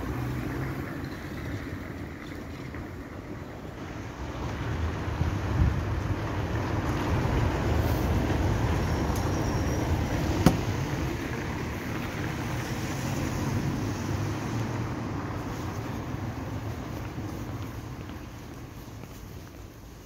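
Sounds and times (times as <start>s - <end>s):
wind buffeting microphone: 4.4s - 8.6s.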